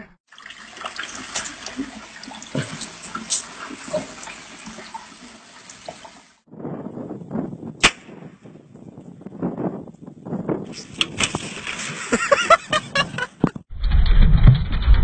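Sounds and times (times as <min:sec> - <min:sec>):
water splashing and dripping: 0:00.3 - 0:06.5.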